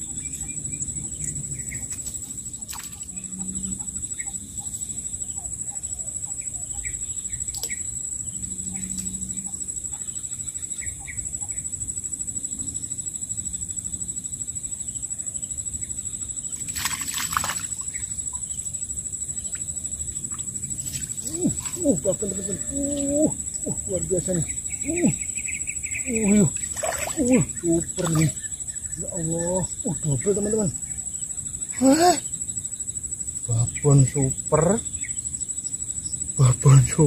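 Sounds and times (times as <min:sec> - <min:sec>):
bird chirps: 0:00.0 - 0:11.7, 0:19.3 - 0:32.4.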